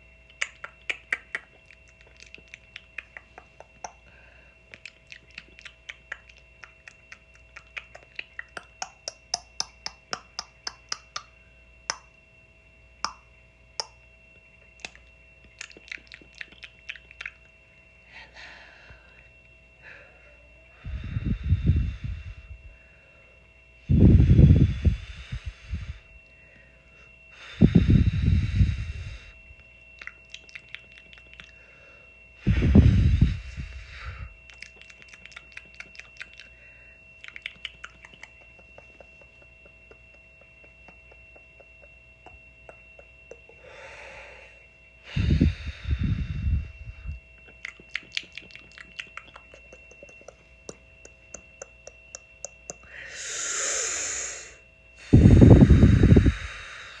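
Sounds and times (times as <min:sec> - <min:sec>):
faint steady whine: 0:00.0 - 0:57.0
wet mouth clicks: 0:00.3 - 0:04.1, 0:04.7 - 0:12.1, 0:13.0 - 0:14.0, 0:14.6 - 0:17.5, 0:30.0 - 0:31.6, 0:34.5 - 0:36.6, 0:37.2 - 0:43.6, 0:47.4 - 0:52.9
hissing whisper: 0:52.8 - 0:57.0.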